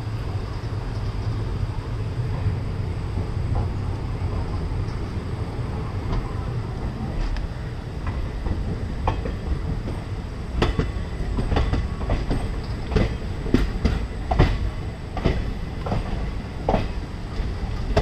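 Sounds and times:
train rumble: 0.0 - 18.0
wheels clacking over rail joints: 7.2 - 18.0.

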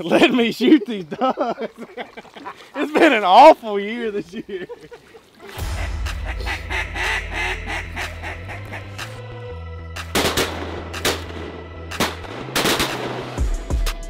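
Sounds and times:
duck quacks: 5.5 - 9.2
low background music: 5.6 - 14.0
shotgun shots: 10.1 - 13.4.

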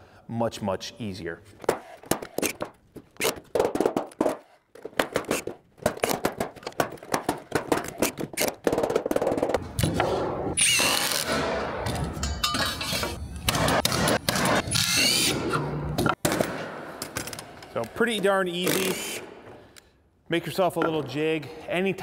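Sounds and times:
nail gun firing: 5.0 - 8.6
metal hangers clinking on wood: 11.8 - 13.4.

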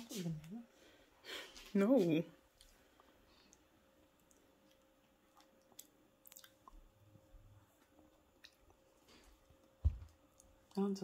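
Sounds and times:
mouth clicks and smacks: 3.5 - 6.9, 8.4 - 8.8.

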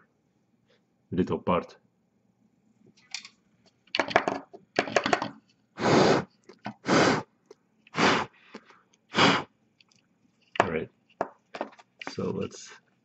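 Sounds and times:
puffs of breath blown: 5.8 - 7.3, 7.9 - 9.5
crackly clicks of motor parts: 9.8 - 12.4.

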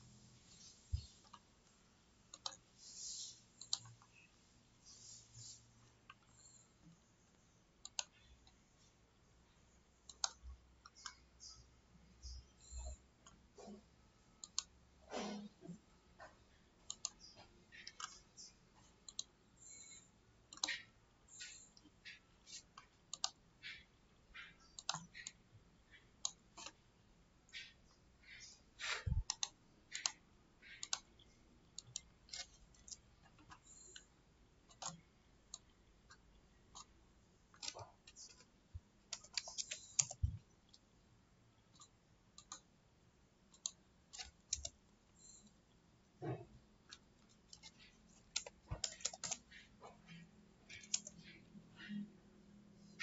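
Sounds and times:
computer mouse clicks: 0.5 - 1.5, 2.3 - 8.6, 10.0 - 26.8, 27.4 - 40.8, 41.6 - 42.7, 43.5 - 52.2
keyboard keystrokes: 46.9 - 49.6.

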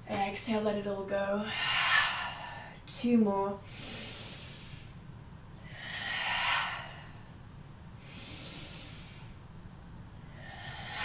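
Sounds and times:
woman breathing deeply: 1.4 - 2.9, 3.6 - 5.0, 5.6 - 9.5, 10.2 - 11.0.

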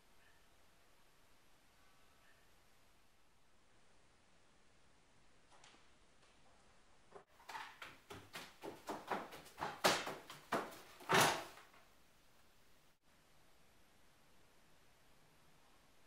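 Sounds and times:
footsteps on wooden floor: 7.8 - 11.5.

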